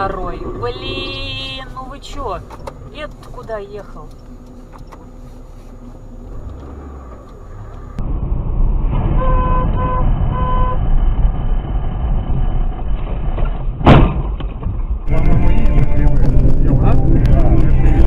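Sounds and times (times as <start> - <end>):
car road and engine noise: 0.0 - 18.0
car horn beeps: 9.2 - 10.8.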